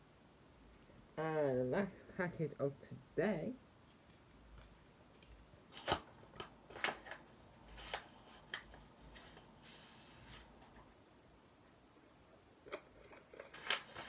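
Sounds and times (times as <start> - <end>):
paper and card rustling: 3.9 - 10.9, 12.7 - 14.0.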